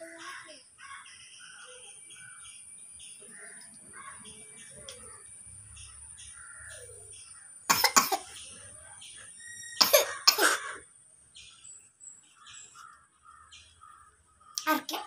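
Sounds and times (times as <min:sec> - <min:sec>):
small birds chirping: 0:00.0 - 0:15.0
girl coughing: 0:07.7 - 0:08.4, 0:09.8 - 0:10.8.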